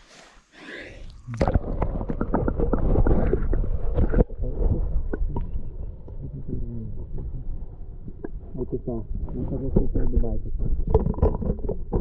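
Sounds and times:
muffled underwater rumble and gurgle: 0.9 - 12.0.

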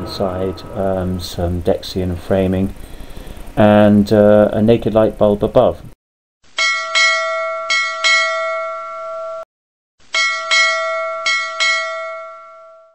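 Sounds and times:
ship's bell ringing: 0.0 - 2.9, 6.6 - 9.4, 10.1 - 12.9.

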